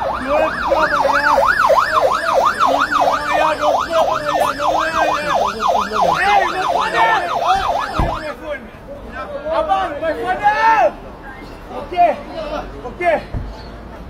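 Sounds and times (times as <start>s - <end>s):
police siren yelping: 0.0s - 8.4s.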